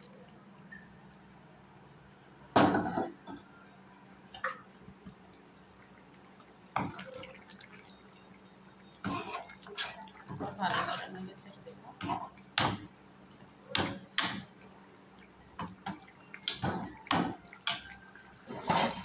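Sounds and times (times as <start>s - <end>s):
curry simmering in a pan: 0.0s - 19.0s
large bubbles plopping: 6.7s - 8.0s.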